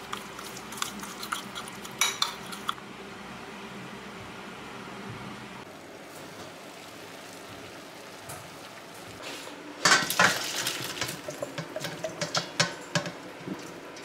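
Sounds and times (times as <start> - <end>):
pan and colander clinking: 2.0 - 2.7, 9.8 - 14.0.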